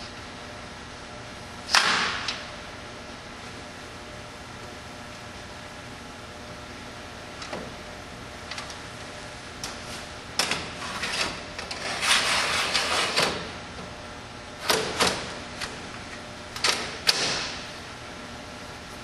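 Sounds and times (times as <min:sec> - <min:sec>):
steady hum: 0:00.0 - 0:19.0
clicks and knocks of hard parts: 0:10.4 - 0:11.8, 0:14.6 - 0:15.8, 0:16.6 - 0:17.6
scraping slide: 0:10.8 - 0:13.2.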